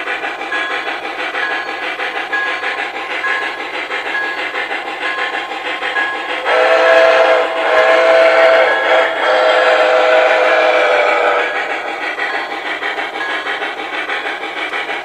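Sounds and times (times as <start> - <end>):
steam locomotive chuffing: 0.0 - 15.0
steam whistle: 6.4 - 11.9.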